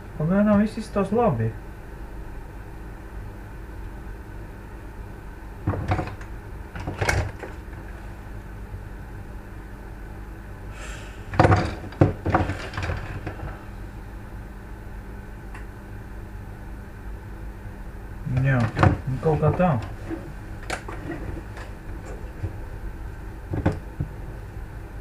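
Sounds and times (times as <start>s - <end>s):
steady low hum: 0.0s - 25.0s
parts clattering and knocking: 5.6s - 7.9s, 11.3s - 13.6s, 18.3s - 22.6s, 23.5s - 24.1s.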